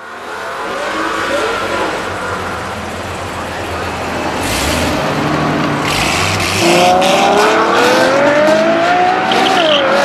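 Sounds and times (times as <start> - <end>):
sports car engine accelerating: 0.7 - 10.0.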